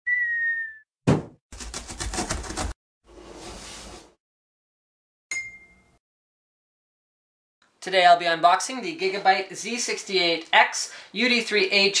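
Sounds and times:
falling cartoon tone: 0.1s - 0.8s
sharp thump: 1.1s - 1.4s.

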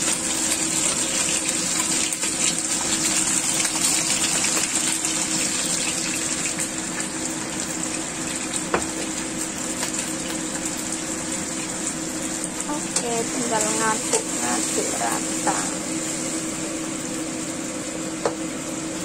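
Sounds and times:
chicken sizzling in hot oil: 0.0s - 19.0s
spatula turning food in pan: 8.4s - 17.6s
steady low hum: 10.2s - 19.0s.

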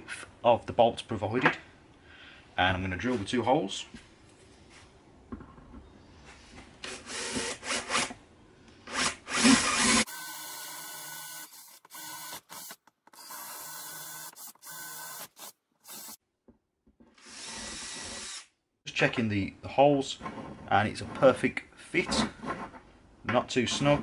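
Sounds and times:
cordless drill boring into wood: 6.9s - 8.1s, 8.9s - 16.2s, 17.2s - 18.5s.

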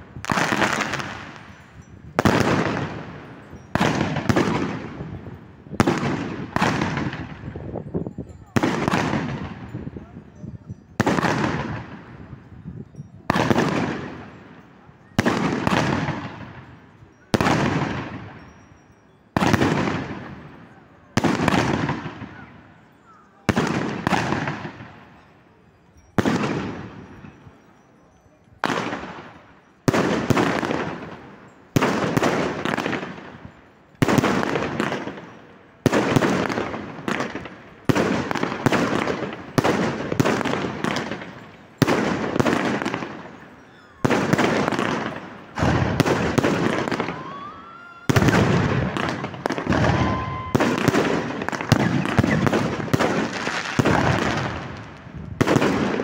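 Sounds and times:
firework crackling: 0.0s - 7.6s, 28.6s - 56.0s
rising firework whistle: 42.9s - 54.7s.

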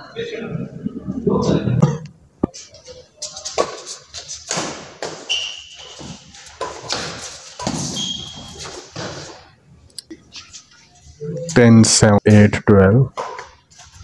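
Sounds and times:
shoes squeaking on floor: 2.6s - 9.5s.

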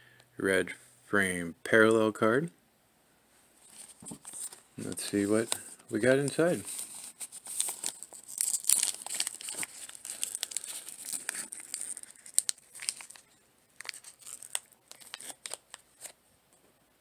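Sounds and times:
wrapper tearing and crinkling: 3.6s - 16.2s.

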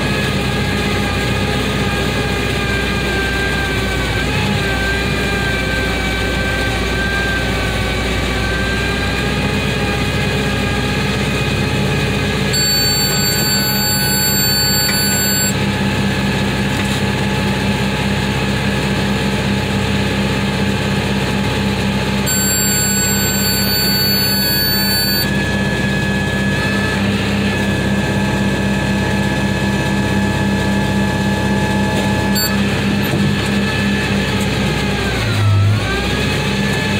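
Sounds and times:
high electronic tone: 12.6s - 15.6s, 22.3s - 25.4s, 32.4s - 32.6s.

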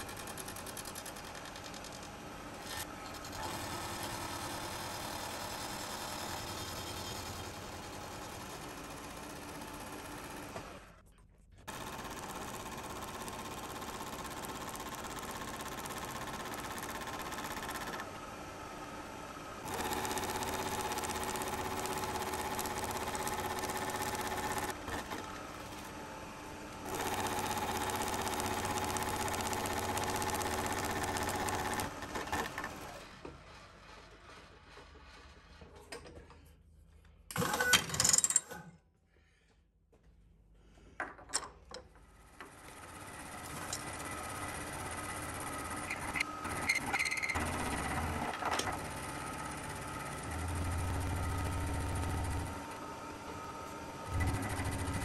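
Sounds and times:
tool clatter: 37.3s - 38.8s.

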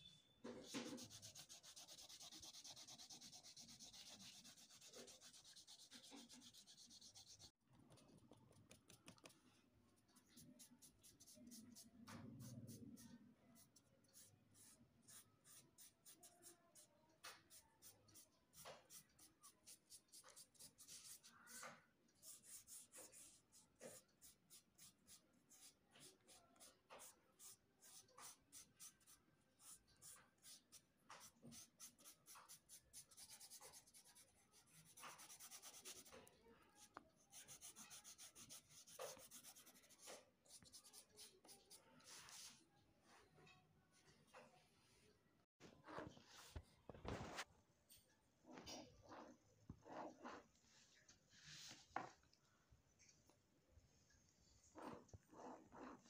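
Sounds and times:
crayon scratching on paper: 0.5s - 9.4s, 10.1s - 42.6s, 54.8s - 56.0s.

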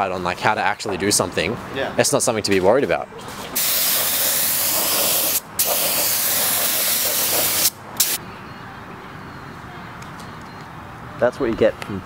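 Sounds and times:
paint spray gun hissing: 3.6s - 8.2s.

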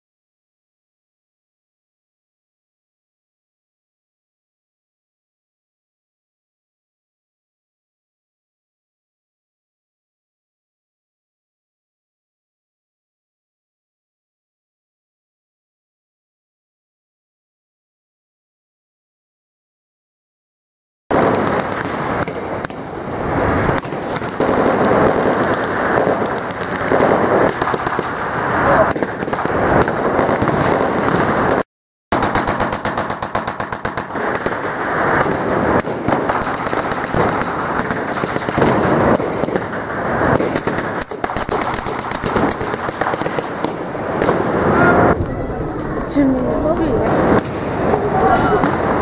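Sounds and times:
rapid machine-gun and rifle fire: 23.8s - 28.2s, 28.9s - 44.5s.

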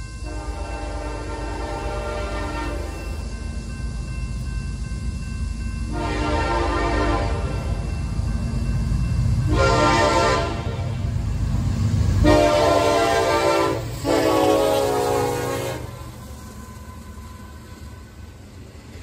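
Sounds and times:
train rumble: 0.0s - 19.0s
locomotive air horn: 0.3s - 2.9s, 5.9s - 7.6s, 9.5s - 11.0s, 12.2s - 16.1s.

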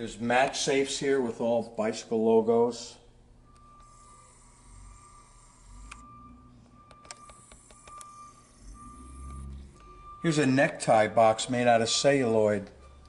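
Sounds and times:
camcorder zoom motor whine: 3.5s - 10.2s
camcorder lens clicks: 6.9s - 8.1s.

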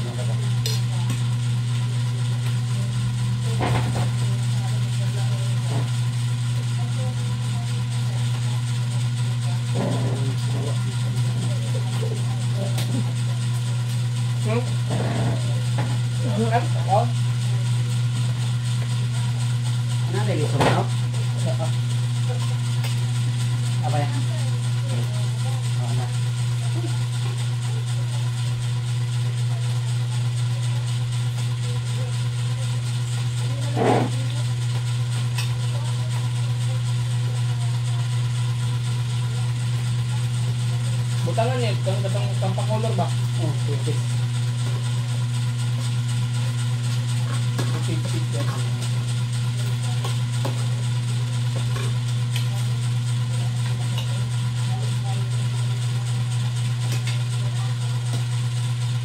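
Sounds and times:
low mechanical hum: 0.0s - 59.0s.

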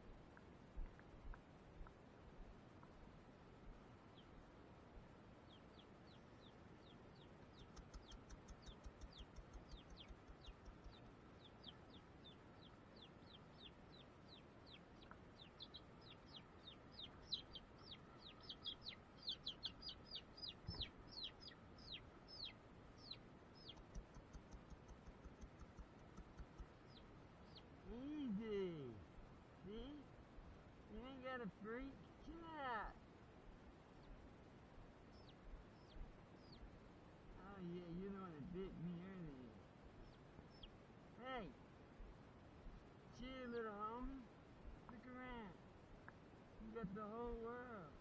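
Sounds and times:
chick peeping: 5.4s - 28.7s, 35.1s - 36.7s, 40.0s - 41.4s.

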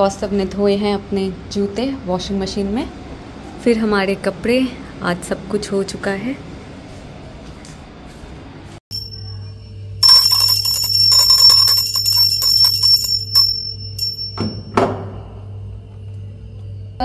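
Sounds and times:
hand bell ringing rapidly: 8.9s - 9.4s, 10.0s - 14.7s
knocks: 14.4s - 15.2s.

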